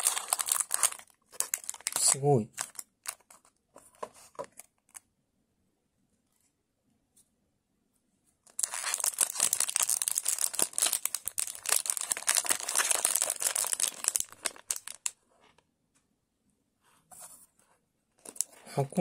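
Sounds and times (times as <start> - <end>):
foil pouch crinkling and tearing: 0.0 - 3.5, 8.5 - 15.2, 18.2 - 18.6.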